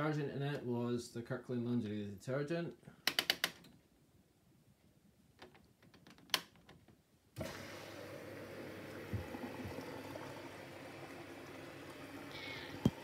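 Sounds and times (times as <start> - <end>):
water rushing into washing machine: 7.4 - 13.0.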